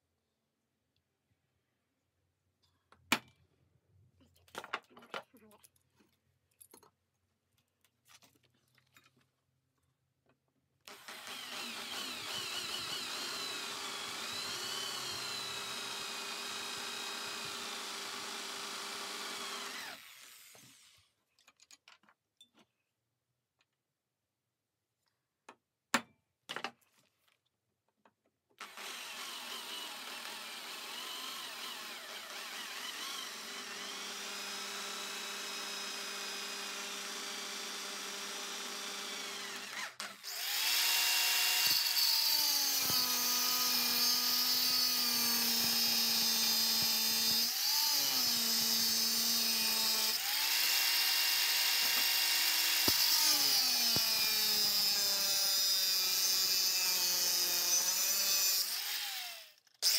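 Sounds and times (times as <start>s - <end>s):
electric drill boring metal: 10.9s - 21.0s, 28.6s - 59.9s
angle grinder grinding metal: 28.6s - 59.9s.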